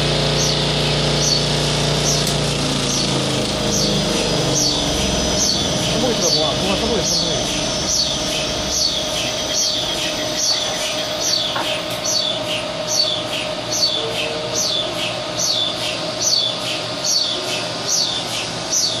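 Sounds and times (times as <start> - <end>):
machine humming: 0.0 - 19.0.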